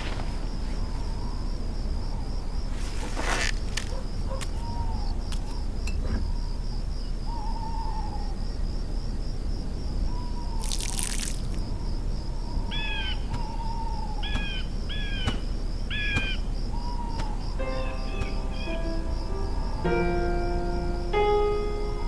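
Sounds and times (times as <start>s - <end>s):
pulsing insect chirr: 0.0s - 22.0s
wooden shutters swishing open: 2.7s - 4.6s
soft owl-like hoots: 6.4s - 8.4s
short falling bird calls: 10.1s - 19.4s.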